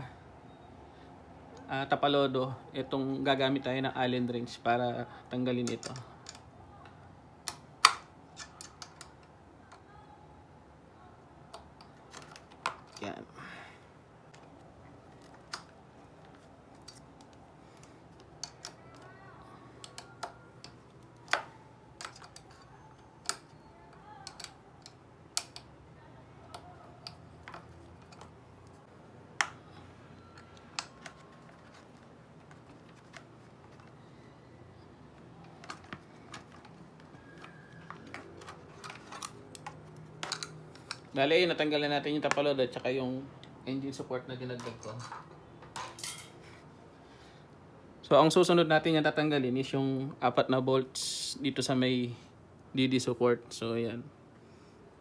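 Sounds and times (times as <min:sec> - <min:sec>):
small metal parts handled: 0:19.8 - 0:25.7, 0:35.4 - 0:41.2, 0:44.6 - 0:46.4.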